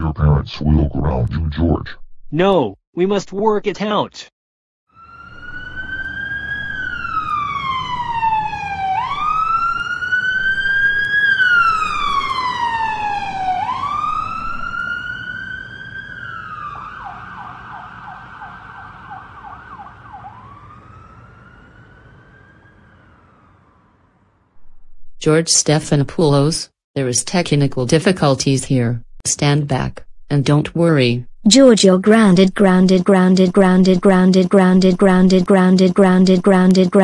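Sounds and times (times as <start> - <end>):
siren wailing: 4.9 - 24.4.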